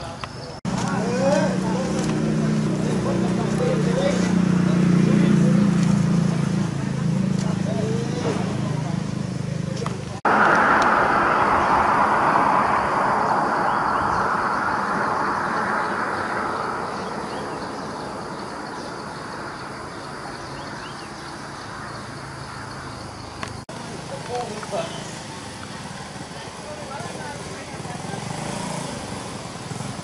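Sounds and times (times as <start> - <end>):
vehicle passing by: 0.7 - 21.5.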